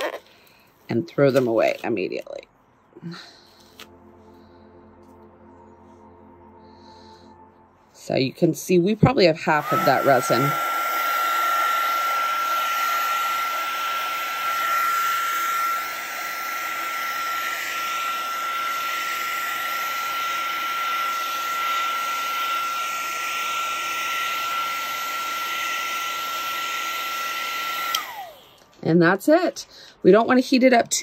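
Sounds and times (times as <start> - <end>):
heat gun fan whine: 9.0 - 28.7.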